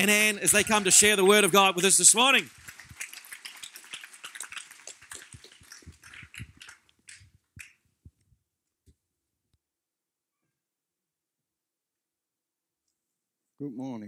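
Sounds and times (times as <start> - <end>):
congregation applauding: 0.0 - 7.2.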